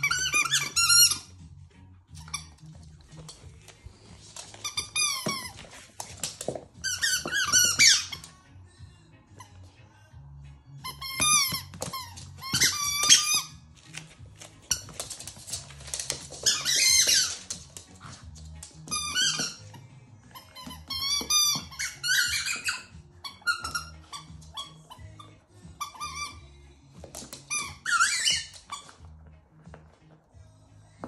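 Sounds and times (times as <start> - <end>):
squeaky ball squeaking: 0.0 - 1.4, 2.1 - 2.8, 4.2 - 8.4, 10.8 - 13.7, 14.6 - 17.8, 18.8 - 29.4.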